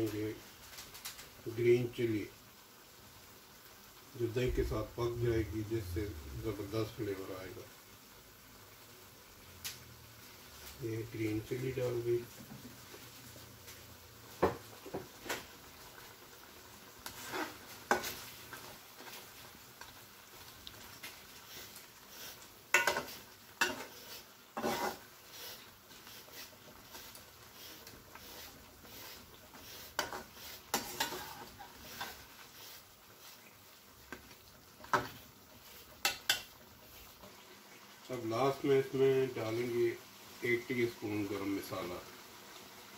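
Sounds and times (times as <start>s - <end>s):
curry sizzling: 0.0s - 42.9s
metal spatula scraping a pan: 17.0s - 19.3s, 21.0s - 33.6s, 34.8s - 37.2s.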